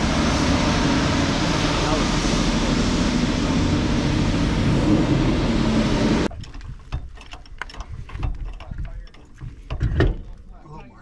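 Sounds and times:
machinery roar with low hum: 0:00.0 - 0:06.3.

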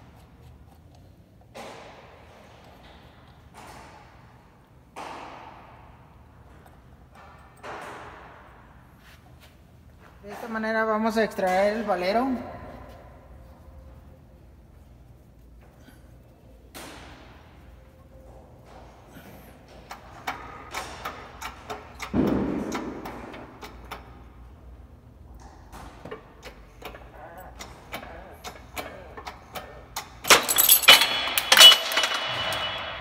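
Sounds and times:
ringing metal clatter: 0:30.2 - 0:33.0.

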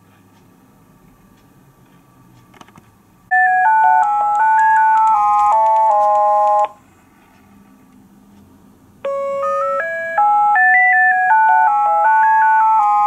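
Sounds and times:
cordless phone melody ringtone: 0:03.3 - 0:06.8, 0:09.0 - 0:13.0.

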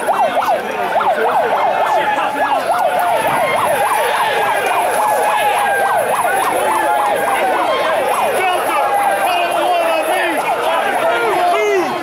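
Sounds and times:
siren yelps: 0:00.0 - 0:12.0
steady held siren tone: 0:00.0 - 0:12.0.

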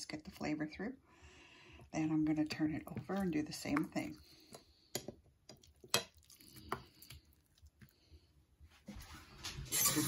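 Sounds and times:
wet squishes of raw steak: 0:05.5 - 0:08.1.

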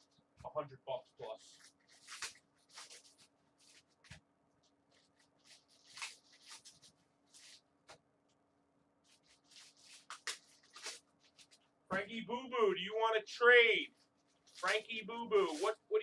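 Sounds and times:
trading cards rustling: 0:01.2 - 0:07.7, 0:09.0 - 0:12.0, 0:14.0 - 0:16.0.

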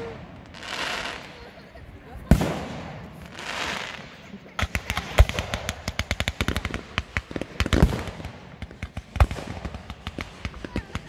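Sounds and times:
fireworks cracking: 0:00.0 - 0:11.0
fireworks booms: 0:02.1 - 0:11.0.

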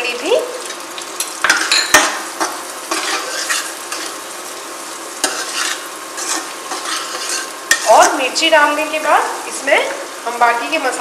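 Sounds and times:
vegetables sizzling in butter: 0:00.0 - 0:11.0
spoon scraping in a pan: 0:00.6 - 0:08.4
spoon clinking on pan: 0:01.2 - 0:03.6.

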